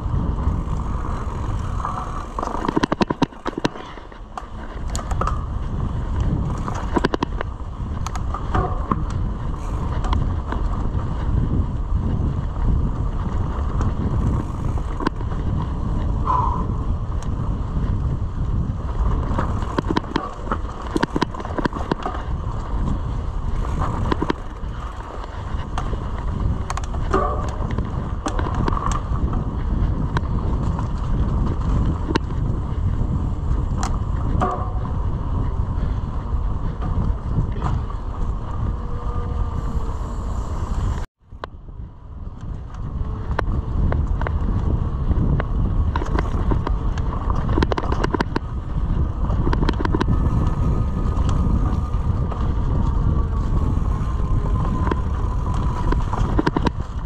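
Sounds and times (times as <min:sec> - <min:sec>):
bike rattles and clicks: 0:00.0 - 0:57.0
bike tyres rolling on dirt: 0:00.0 - 0:57.0
wind rumbling over microphone: 0:00.0 - 0:57.0.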